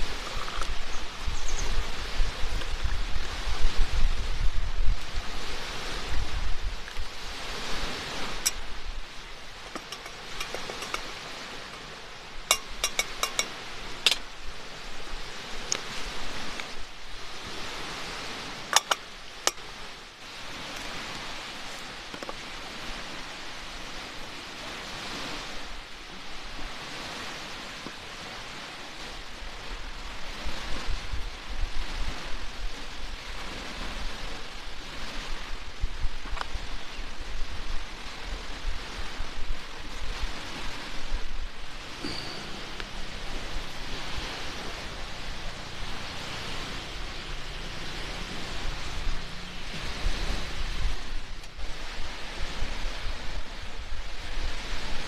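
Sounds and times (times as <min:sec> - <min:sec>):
wind and surf hiss: 0:00.0 - 0:55.0
cups and tableware clicking: 0:12.5 - 0:13.5.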